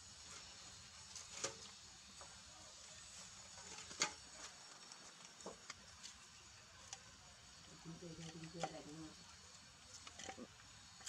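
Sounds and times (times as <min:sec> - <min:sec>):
faint high hiss: 0:00.0 - 0:08.0.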